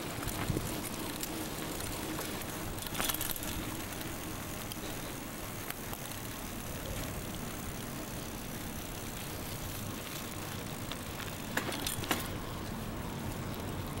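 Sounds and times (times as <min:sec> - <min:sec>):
bicycle rumbling over rough ground: 0:00.0 - 0:14.0
sharp rattles: 0:05.8 - 0:12.4.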